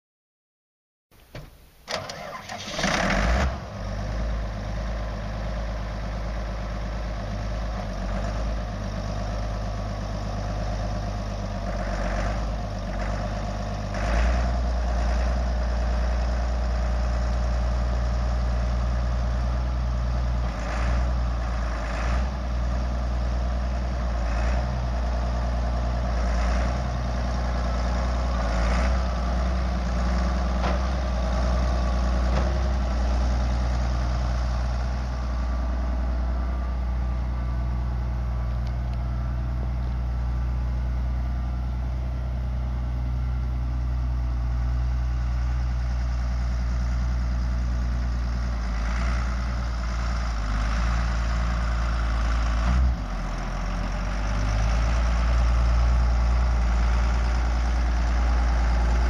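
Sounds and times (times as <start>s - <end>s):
diesel tractor idling: 1.2s - 59.0s.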